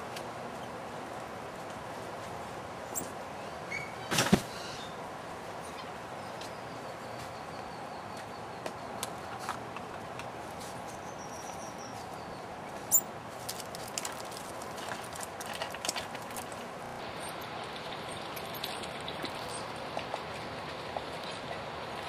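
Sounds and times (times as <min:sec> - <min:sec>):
steady outdoor hiss: 0:00.0 - 0:22.0
animals scrabbling over dry leaves: 0:10.4 - 0:21.5.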